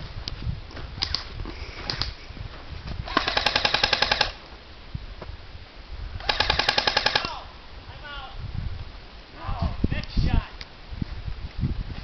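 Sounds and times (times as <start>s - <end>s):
airsoft rifle bursts: 3.1s - 4.4s, 6.2s - 7.4s.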